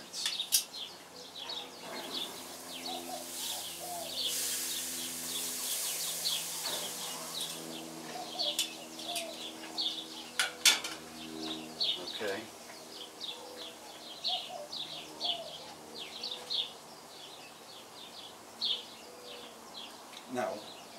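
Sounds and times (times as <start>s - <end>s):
steady low hum: 0.0s - 17.3s
small birds chirping: 0.0s - 20.9s
meat sizzling on a grill: 2.0s - 7.6s
metal tongs and grill lid clanking: 10.4s - 11.0s.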